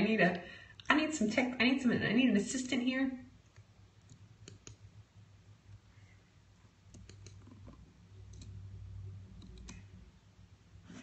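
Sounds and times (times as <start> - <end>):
computer mouse clicks: 3.4 - 4.9, 6.9 - 8.6, 9.3 - 10.0.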